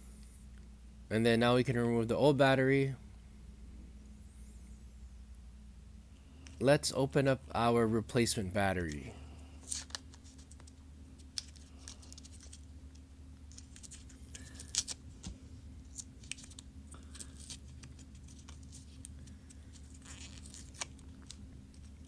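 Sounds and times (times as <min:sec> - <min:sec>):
faint steady hum: 0:00.0 - 0:22.0
blister pack crinkling: 0:09.6 - 0:22.0.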